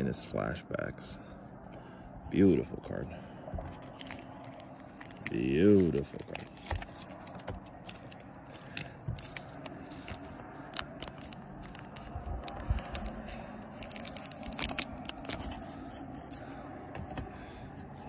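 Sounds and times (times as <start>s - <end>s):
plastic sleeve crinkling and scraping: 3.6s - 16.6s.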